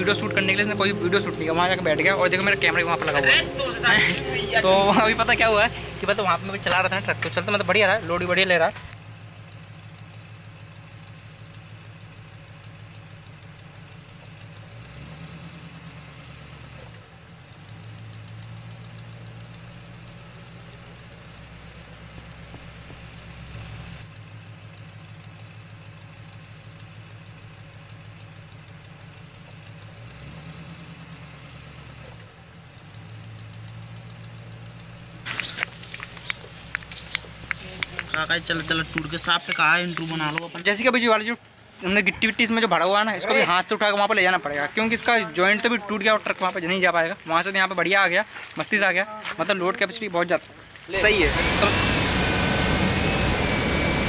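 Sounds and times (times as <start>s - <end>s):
electric motor humming: 35.1s - 40.8s.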